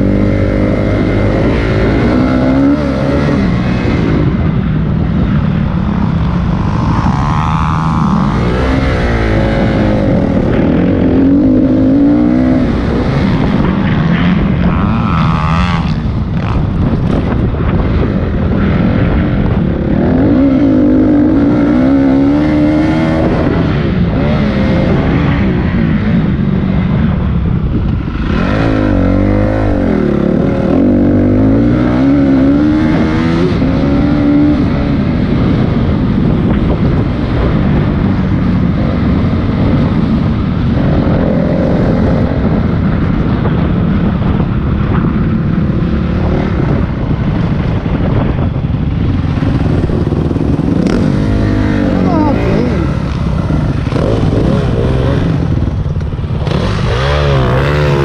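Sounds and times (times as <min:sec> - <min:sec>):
dirt bike engine revving: 0:00.0 - 0:26.2, 0:28.0 - 0:38.0, 0:49.0 - 0:58.0.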